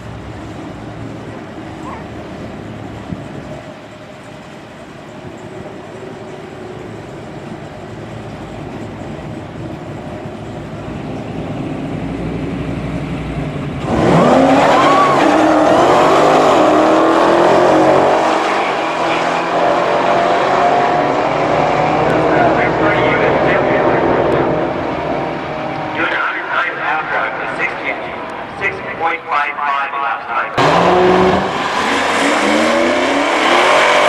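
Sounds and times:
cars accelerating at full throttle: 0.0 - 29.2, 30.5 - 34.0
car engines idling: 0.0 - 33.6.

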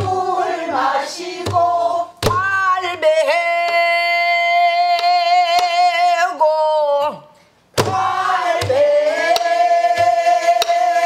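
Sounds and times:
barrel drum beats: 1.4 - 2.8, 7.8 - 11.0
woman singing: 2.4 - 7.2.

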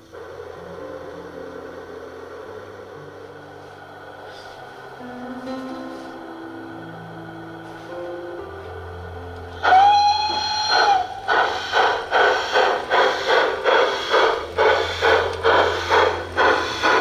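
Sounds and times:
steam chuffs: 0.0 - 17.0
model steam locomotive whistle: 7.7 - 17.0.

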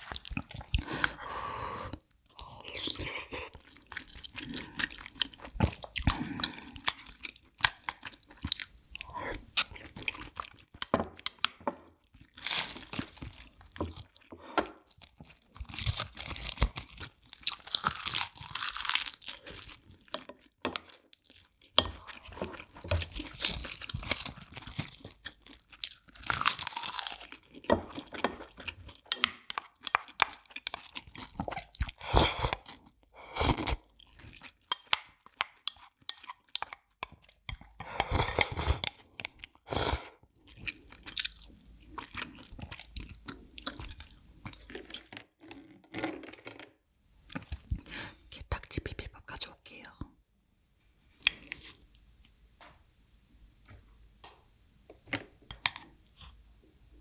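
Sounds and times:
crunching and chewing: 2.6 - 46.7.

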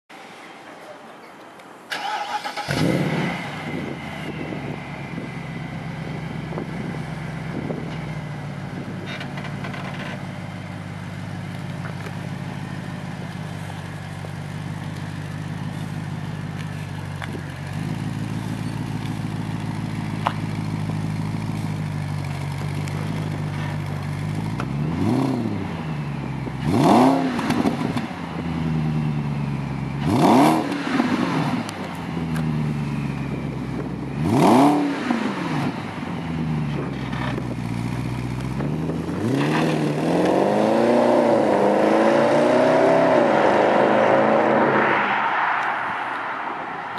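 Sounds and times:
car engine revving: 1.9 - 7.9, 14.6 - 46.9
car engine idling: 3.6 - 26.8, 36.0 - 39.2.

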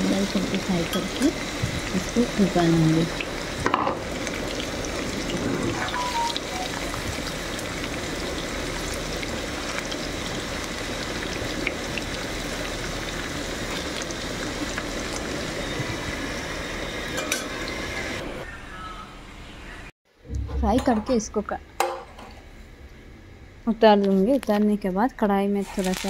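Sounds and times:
deep-frying sizzle: 0.0 - 18.4.

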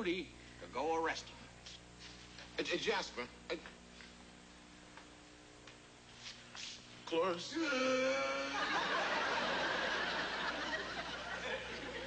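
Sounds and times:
studio audience laughing: 8.4 - 12.0.

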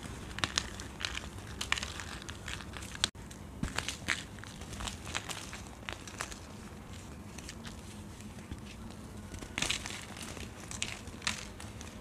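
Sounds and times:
powder lumps crunching in hand: 0.0 - 7.8.

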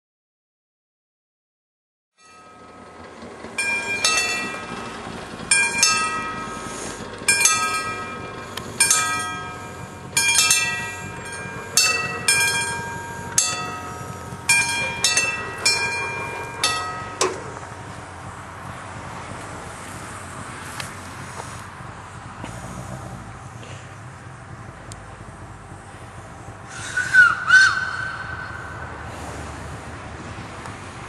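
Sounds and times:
mechanical warning bell ringing: 2.2 - 19.1
steady background noise: 2.3 - 31.0.

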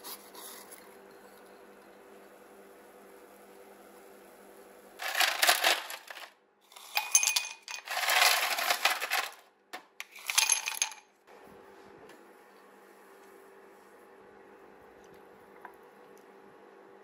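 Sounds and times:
ice cubes clinking in glass: 5.0 - 9.4, 10.0 - 11.0.

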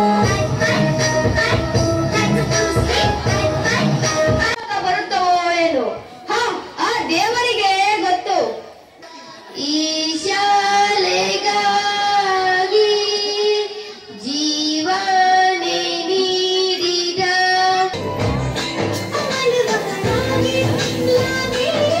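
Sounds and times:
dance music with heavy bass: 0.2 - 4.5
boy singing into microphone: 9.0 - 18.0, 19.0 - 22.0.

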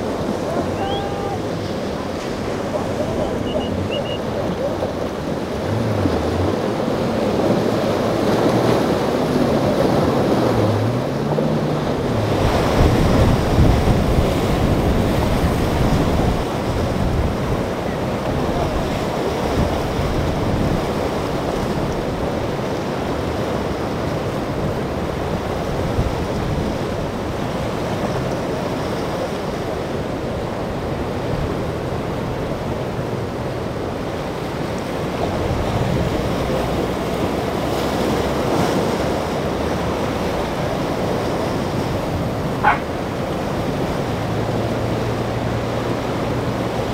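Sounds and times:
wind buffeting microphone: 0.0 - 34.0, 35.1 - 46.9
outboard engine: 0.0 - 46.9
surf churning and breaking: 0.0 - 46.9.

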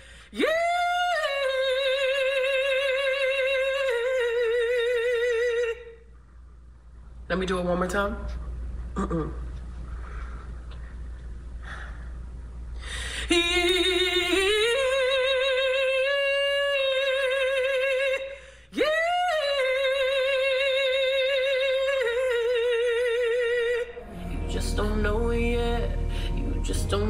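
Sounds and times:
woman singing unaccompanied: 0.4 - 6.0, 13.3 - 27.0.

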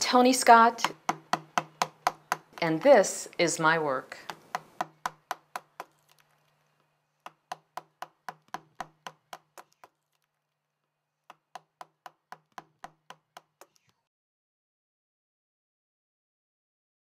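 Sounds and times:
rhythmic percussion tapping: 0.8 - 3.1, 4.2 - 6.1, 7.2 - 10.0, 11.3 - 13.9.

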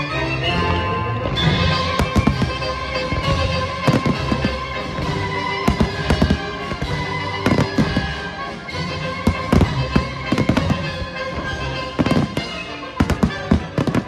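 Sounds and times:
music playing: 0.0 - 14.0
fireworks bursting with bangs: 1.4 - 14.0.

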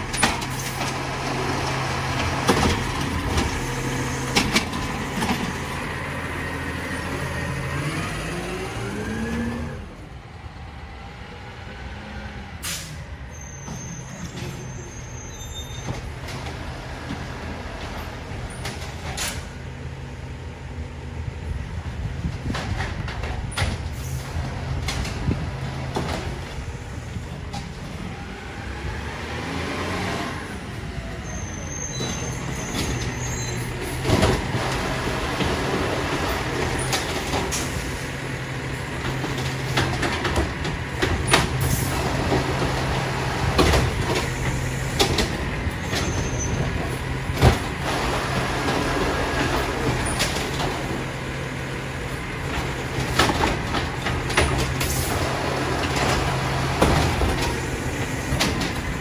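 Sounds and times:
trash carts clunking and banging: 0.0 - 10.2, 12.6 - 59.0
garbage truck diesel engine: 0.0 - 59.0
hydraulics whining: 21.3 - 59.0.

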